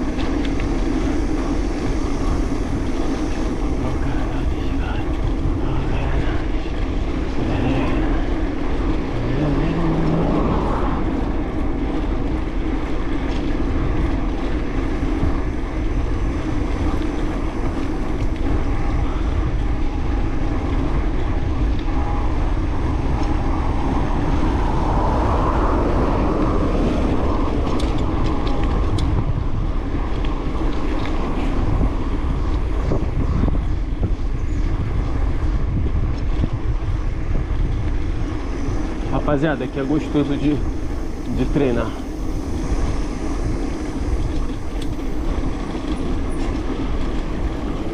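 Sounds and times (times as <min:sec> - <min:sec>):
road noise: 0:00.0 - 0:47.9
wind rumbling on microphone: 0:00.0 - 0:47.9.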